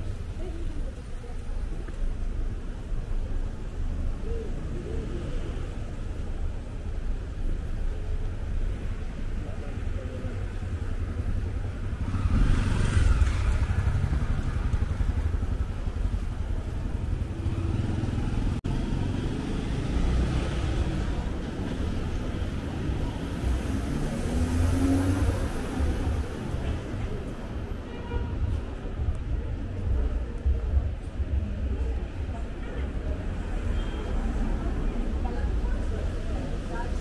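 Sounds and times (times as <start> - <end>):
low traffic rumble: 0.0 - 37.0
cars passing: 11.0 - 37.0.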